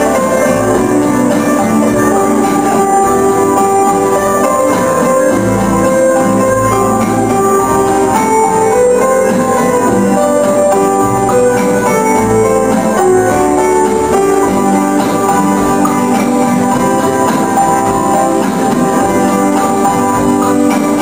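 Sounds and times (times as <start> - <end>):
beguine dance music: 0.0 - 21.0.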